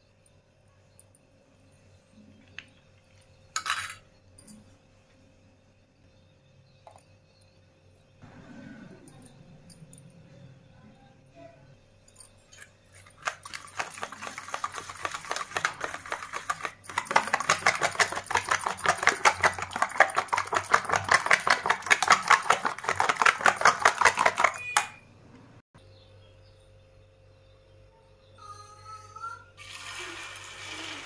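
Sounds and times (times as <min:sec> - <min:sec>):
spoon clinking in metal bowl: 0:03.6 - 0:04.6, 0:12.4 - 0:25.0.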